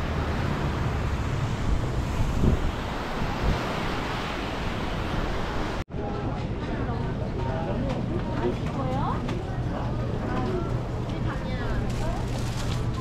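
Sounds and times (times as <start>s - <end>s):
surf washing onto beach: 0.0s - 5.8s
wind buffeting microphone: 0.8s - 5.8s.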